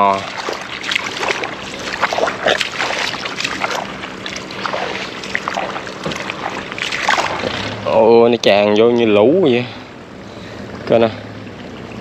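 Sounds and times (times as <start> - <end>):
shallow water splashing and trickling: 0.0 - 7.8.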